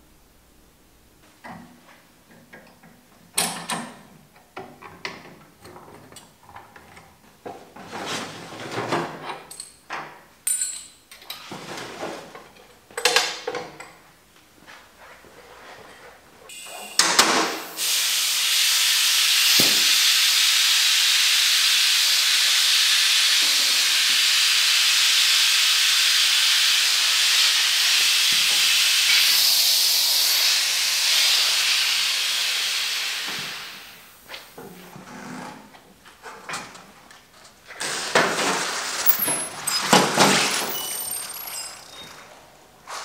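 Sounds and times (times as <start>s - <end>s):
compressed air hissing from valve: 16.6s - 34.2s.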